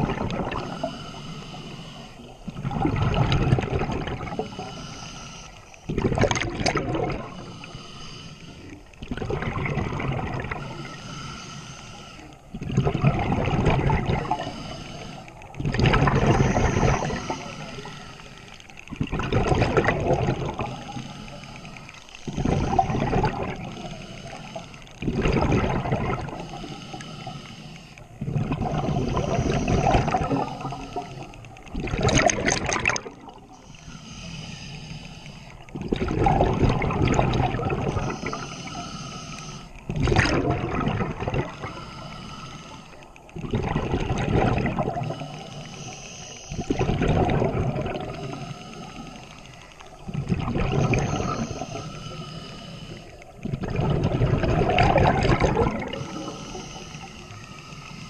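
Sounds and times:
regulator hiss: 0:00.6 - 0:02.4, 0:04.4 - 0:05.9, 0:07.3 - 0:09.0, 0:10.6 - 0:12.5, 0:16.2 - 0:18.8, 0:20.5 - 0:25.0, 0:26.2 - 0:28.2, 0:33.3 - 0:35.7, 0:37.9 - 0:39.9, 0:41.5 - 0:43.4, 0:45.0 - 0:46.8, 0:48.0 - 0:50.1, 0:50.8 - 0:53.4, 0:55.8 - 0:58.0
regulator exhaust bubbles: 0:39.9 - 0:41.5, 0:53.4 - 0:56.1.

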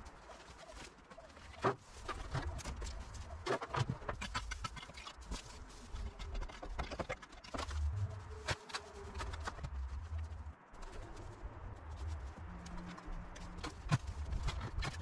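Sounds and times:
rake scraping dry grass: 0:00.0 - 0:06.8
hands rustling dry debris: 0:00.0 - 0:15.0.

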